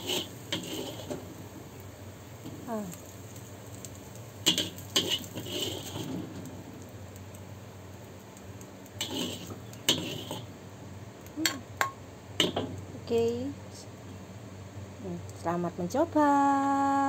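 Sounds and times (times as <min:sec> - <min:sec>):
spatula scraping wok: 0:00.0 - 0:01.4, 0:04.4 - 0:06.4, 0:08.9 - 0:10.5.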